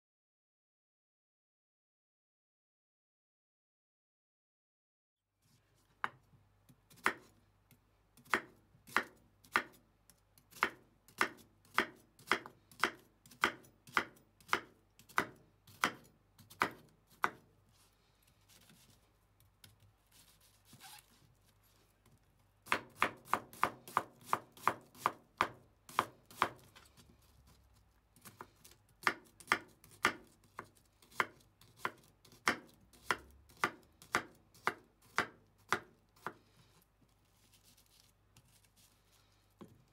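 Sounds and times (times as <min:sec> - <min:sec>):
knife chopping on cutting board: 0:06.9 - 0:07.3, 0:08.2 - 0:09.8, 0:10.5 - 0:17.5, 0:22.6 - 0:26.8, 0:28.2 - 0:36.4.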